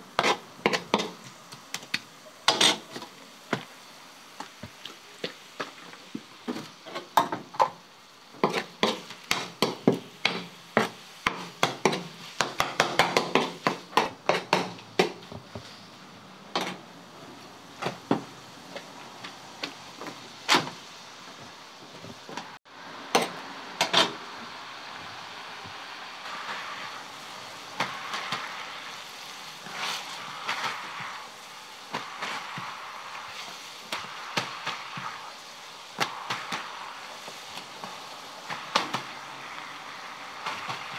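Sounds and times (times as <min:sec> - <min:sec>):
food rustling on a pan: 0:00.0 - 0:07.5, 0:08.3 - 0:16.0, 0:26.3 - 0:40.9.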